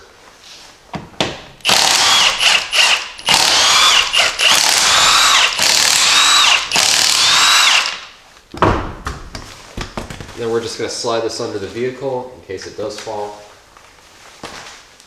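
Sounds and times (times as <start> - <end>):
impact wrench hammering: 1.2 - 8.2.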